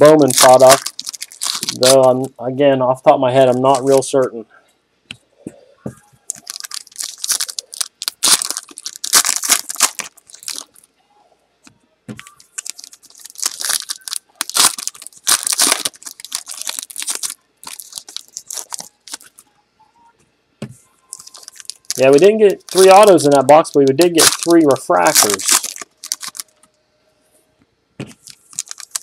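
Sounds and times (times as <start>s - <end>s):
wrappers crinkling: 0.0s - 2.3s, 3.4s - 4.1s, 6.2s - 10.9s, 12.2s - 19.4s, 21.1s - 26.6s, 28.0s - 29.0s
cards being flipped through: 21.2s - 26.6s.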